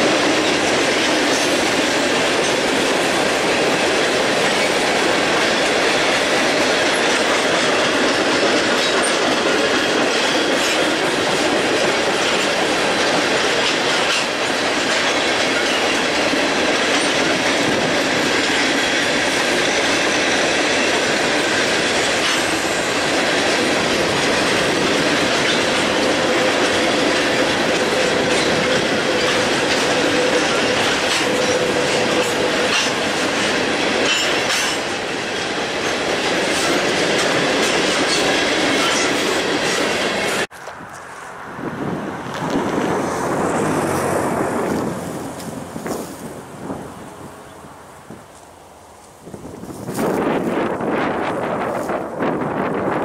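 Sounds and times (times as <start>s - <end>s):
wheels clicking over rail joints: 0.0s - 41.3s.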